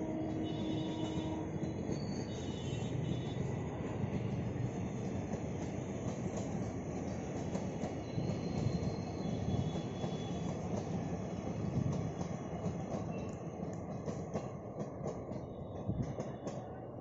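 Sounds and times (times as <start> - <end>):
train wheels rumbling on rail: 0.0 - 17.0
high wheel squeal: 8.0 - 10.5.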